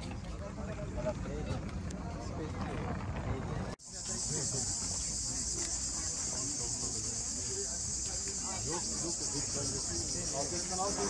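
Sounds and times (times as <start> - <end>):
faint voices: 0.0 - 11.0
insects buzzing: 3.8 - 11.0.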